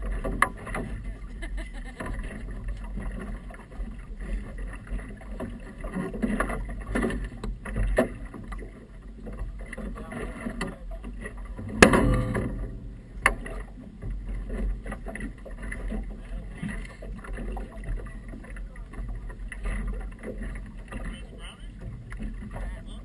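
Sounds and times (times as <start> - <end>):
boat engine low rumble: 0.0 - 23.0
water slapping against hull: 0.0 - 23.0
sharp knock: 11.7 - 12.8.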